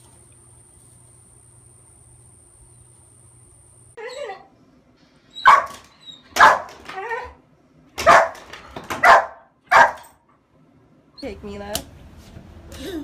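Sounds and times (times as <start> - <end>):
small dog barking: 5.4 - 5.8, 6.4 - 6.8, 8.0 - 10.1.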